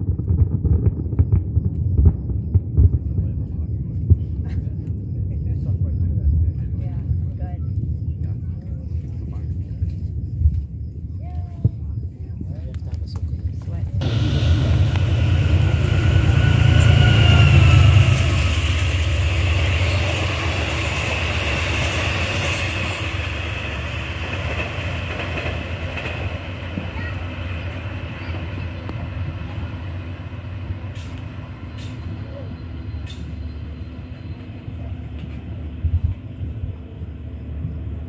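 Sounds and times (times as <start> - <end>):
train rumbling down the track: 0.0 - 38.0
high whine: 14.0 - 24.0.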